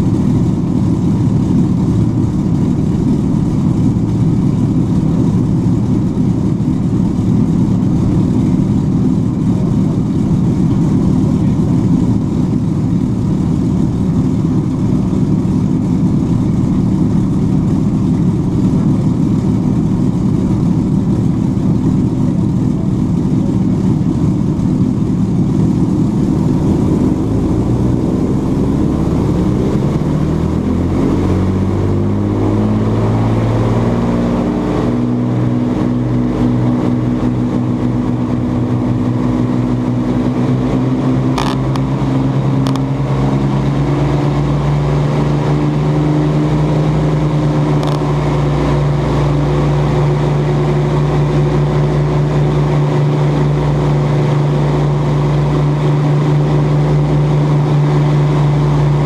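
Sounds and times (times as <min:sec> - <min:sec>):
aircraft piston engines droning: 0:00.0 - 0:59.0.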